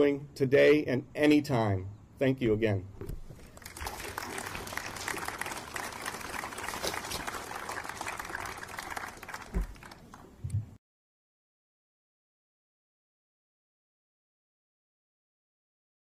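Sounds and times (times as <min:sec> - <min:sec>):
audience applauding: 0:03.4 - 0:10.4.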